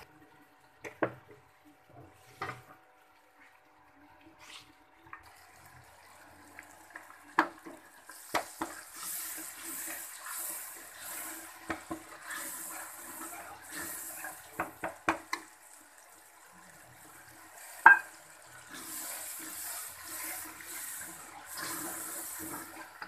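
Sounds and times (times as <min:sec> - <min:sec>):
masala sizzling in oil: 0:03.3 - 0:23.0.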